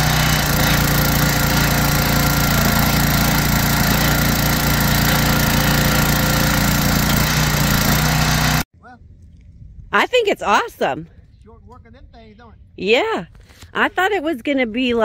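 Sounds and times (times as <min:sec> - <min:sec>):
small gasoline engine running: 0:00.0 - 0:08.7.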